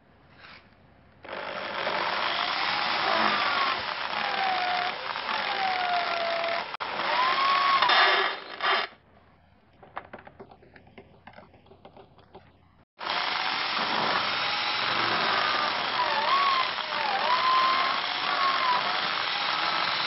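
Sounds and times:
electric drill drilling into wood: 0:01.3 - 0:08.9, 0:13.0 - 0:20.0.

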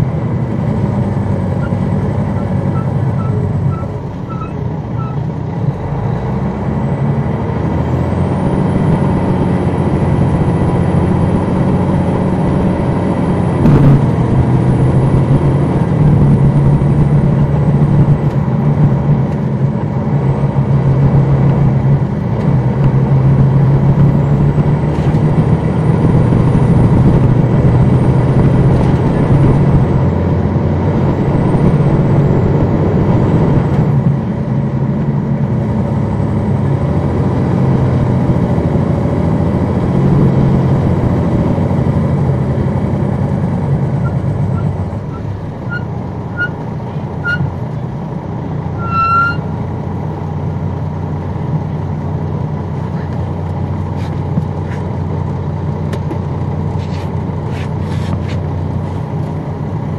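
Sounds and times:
bus diesel engine running: 0:00.0 - 0:59.9
short high beeps: 0:48.8 - 0:49.5.

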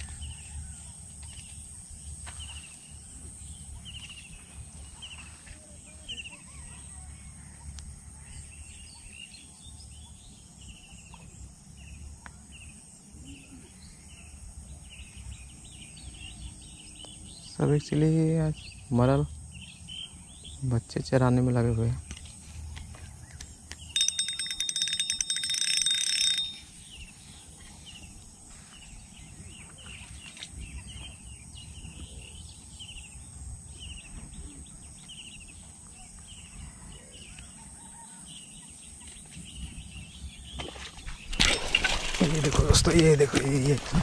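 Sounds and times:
fishing reel whirring click: 0:23.9 - 0:26.6.

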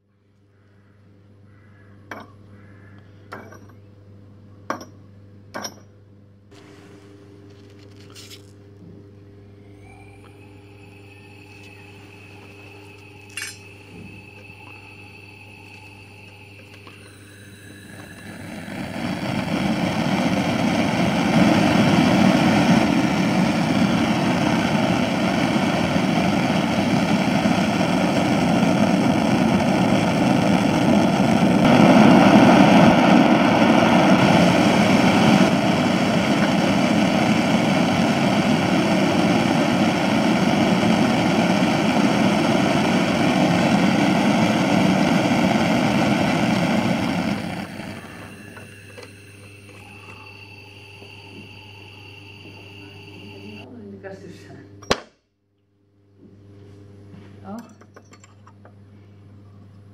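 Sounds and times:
gas burner flame rushing: 0:09.6 - 0:53.7.

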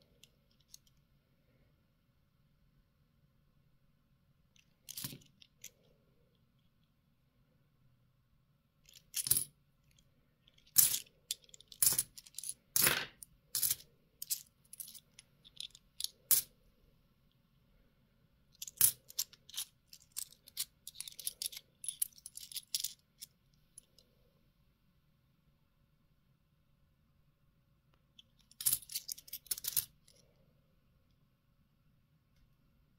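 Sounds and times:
coins clinking: 0:08.9 - 0:09.5, 0:10.7 - 0:16.5, 0:18.6 - 0:23.3, 0:28.5 - 0:29.9.

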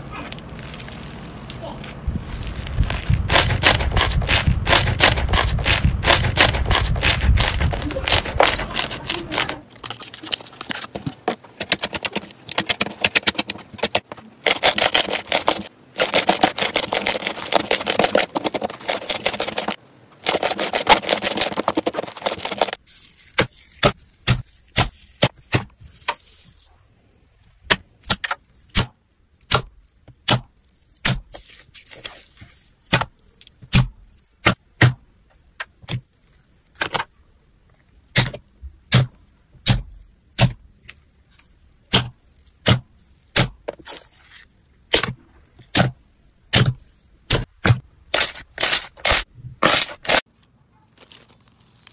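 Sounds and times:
foam-bead slime crackling: 0:00.0 - 0:26.8, 0:48.2 - 0:51.9.

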